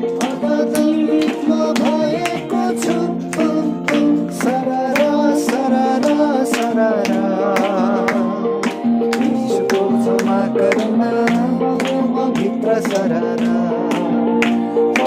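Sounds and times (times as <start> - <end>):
strummed acoustic guitar: 0.0 - 15.0.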